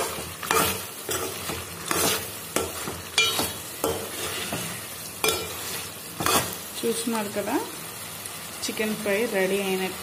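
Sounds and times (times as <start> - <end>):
ladle scraping metal pan: 0.0 - 6.6
frying sizzle: 0.0 - 10.0.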